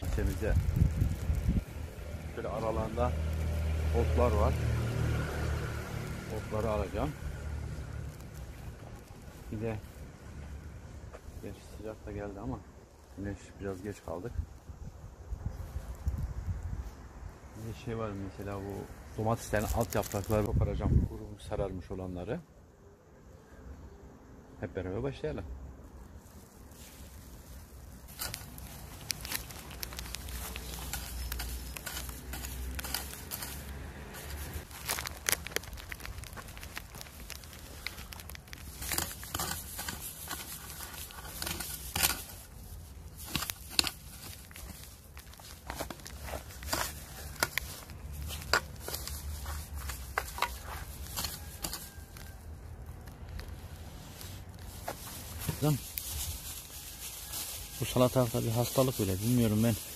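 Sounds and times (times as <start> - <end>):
leaves snapping and crackling: 0.0 - 10.6, 18.4 - 20.7, 25.9 - 59.9
footsteps among garden plants: 0.0 - 12.3, 18.0 - 21.1, 26.0 - 59.9
foliage rustling: 0.0 - 21.4, 25.7 - 59.9.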